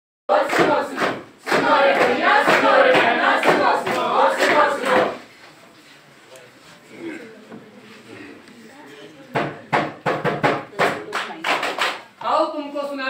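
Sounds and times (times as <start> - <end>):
sharp rhythmic beats: 0.3 - 5.2
group chanting in unison: 0.3 - 5.3.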